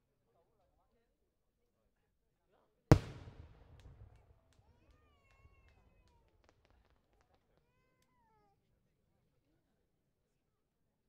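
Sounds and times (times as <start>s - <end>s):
firework burst rumble: 2.9s - 4.2s
sharp firework crackles: 2.9s - 4.2s.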